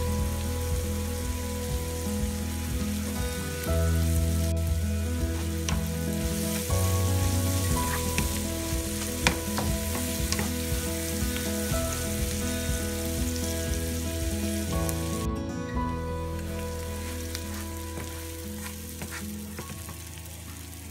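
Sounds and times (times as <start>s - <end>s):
onions sizzling in a frying pan: 0.0s - 15.3s, 16.3s - 20.9s
background music of held chords: 0.0s - 20.9s
wooden spatula scraping a pan: 5.3s - 11.5s.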